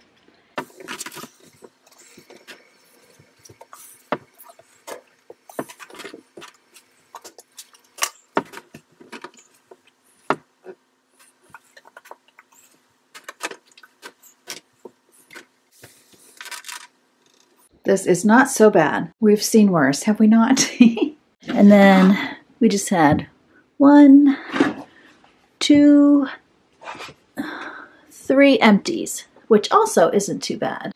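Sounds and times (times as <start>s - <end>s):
faint steady hum: 0.0s - 30.9s.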